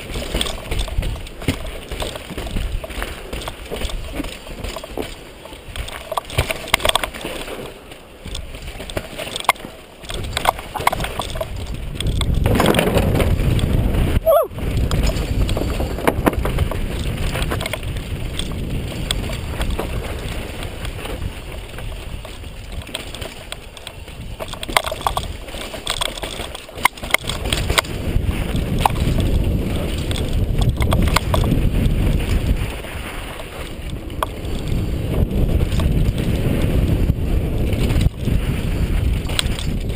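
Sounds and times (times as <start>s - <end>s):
bike rattling over bumps: 0.0s - 39.9s
bike tyres crunching over dirt: 0.0s - 39.9s
wind rushing over microphone: 10.0s - 39.9s.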